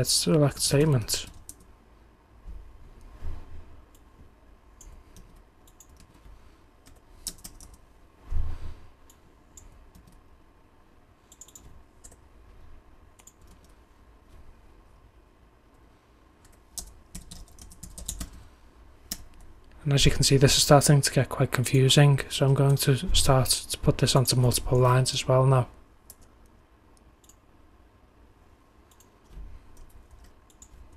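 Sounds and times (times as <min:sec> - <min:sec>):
computer keyboard typing: 0:01.1 - 0:01.7, 0:04.8 - 0:07.8, 0:09.6 - 0:10.2, 0:11.3 - 0:12.2, 0:13.2 - 0:13.8, 0:16.4 - 0:18.4, 0:28.9 - 0:30.9.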